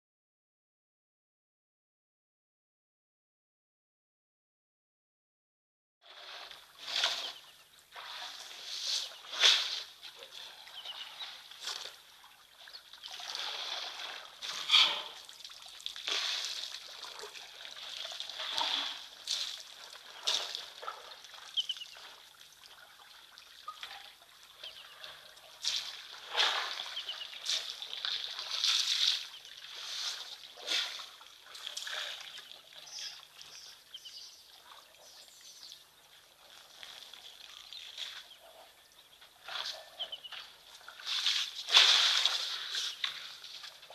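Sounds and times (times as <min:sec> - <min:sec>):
water splashing and trickling: 0:06.0 - 0:43.9.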